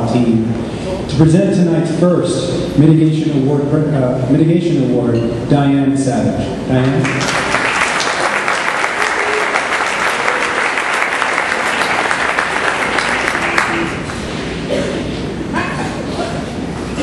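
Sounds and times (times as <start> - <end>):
audience applauding: 7.0 - 14.2.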